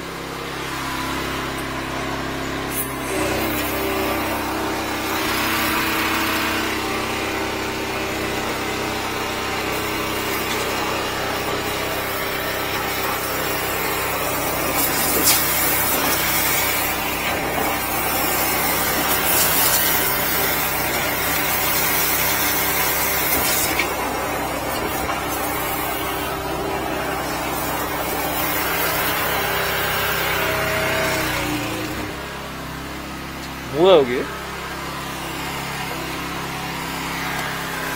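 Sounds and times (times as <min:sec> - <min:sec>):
sewer jetter engine drone: 0:00.0 - 0:37.9
water jet hissing and spattering: 0:02.7 - 0:32.0.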